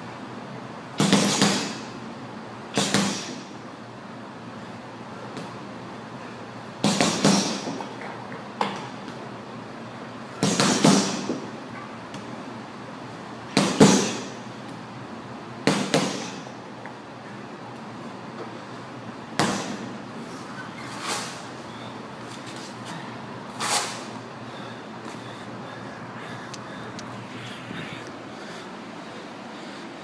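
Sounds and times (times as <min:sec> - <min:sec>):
boxing gloves punching heavy bag: 0:01.0 - 0:01.9, 0:02.8 - 0:03.4, 0:06.8 - 0:07.8, 0:10.4 - 0:11.4, 0:13.5 - 0:14.4, 0:15.6 - 0:16.5.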